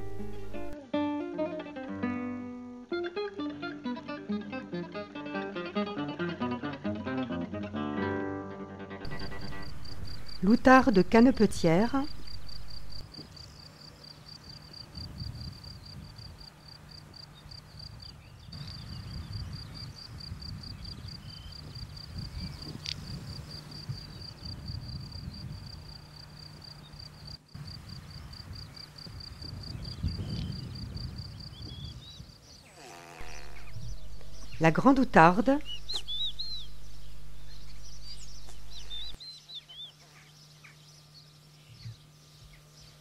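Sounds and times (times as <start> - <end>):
wind rumble: 9.1 - 13.1, 14.9 - 16.4, 17.9 - 26.0, 27.6 - 32.3, 33.2 - 39.2
cricket chirping: 9.1 - 39.2
short sharp sound: 33.2 - 38.7.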